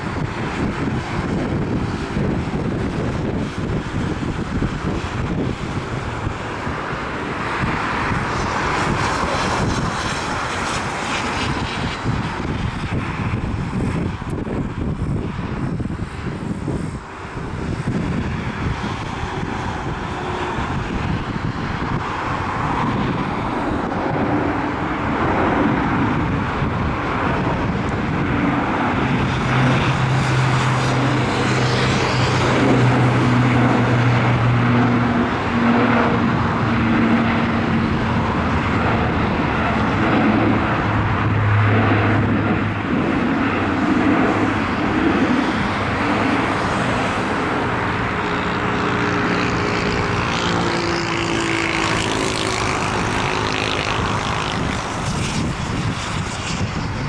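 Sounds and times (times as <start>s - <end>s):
turboprop aircraft engines roaring: 0.0s - 57.0s.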